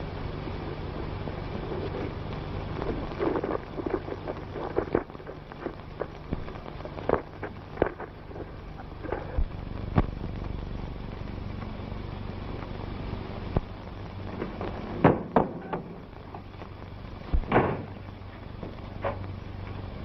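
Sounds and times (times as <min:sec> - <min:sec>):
soundtrack hum and hiss: 0:00.0 - 0:20.0
thud: 0:15.0 - 0:15.8, 0:17.3 - 0:18.0.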